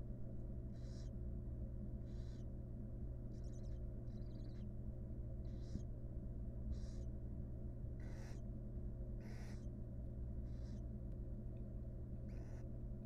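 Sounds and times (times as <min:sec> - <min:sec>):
steady low hum: 0:00.0 - 0:13.0
owls hissing: 0:00.8 - 0:01.1, 0:02.1 - 0:02.5, 0:05.4 - 0:05.8, 0:06.7 - 0:07.1, 0:08.0 - 0:08.4, 0:09.2 - 0:09.7, 0:10.4 - 0:10.8, 0:12.3 - 0:12.6.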